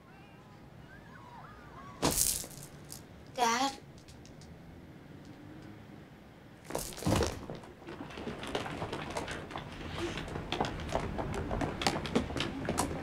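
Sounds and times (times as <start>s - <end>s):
distressed people's voices: 0.0s - 2.1s.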